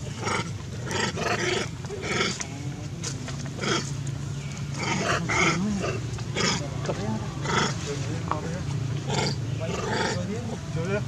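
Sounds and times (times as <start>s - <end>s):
macaques giving harsh calls: 0.0s - 2.5s, 3.6s - 4.0s, 4.7s - 7.8s, 9.0s - 10.6s.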